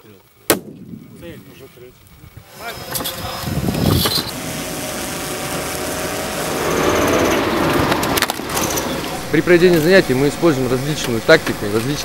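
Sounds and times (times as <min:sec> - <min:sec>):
armoured vehicle diesel engine: 0:05.6 - 0:12.0.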